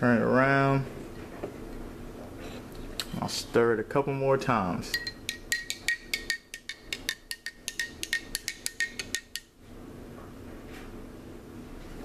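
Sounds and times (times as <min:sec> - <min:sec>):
low steady hum: 0:00.0 - 0:12.0
spoon clinking against glass: 0:04.9 - 0:09.5.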